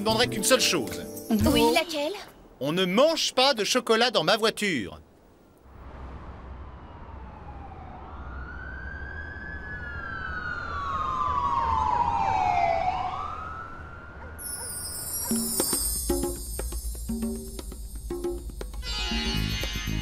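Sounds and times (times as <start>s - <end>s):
siren wailing: 6.5s - 15.0s.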